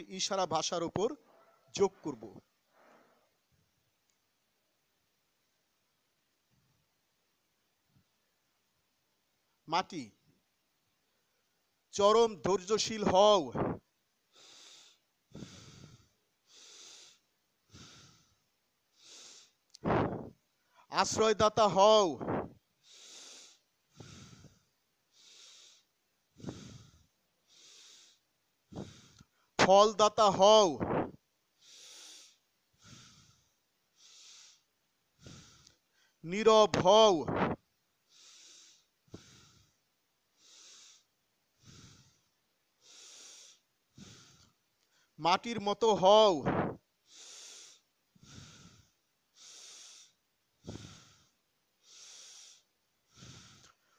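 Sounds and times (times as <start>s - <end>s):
soft breathing: 1.2s - 3.5s, 13.6s - 20.9s, 22.2s - 29.6s, 30.8s - 36.2s, 37.4s - 45.2s, 46.5s - 53.9s.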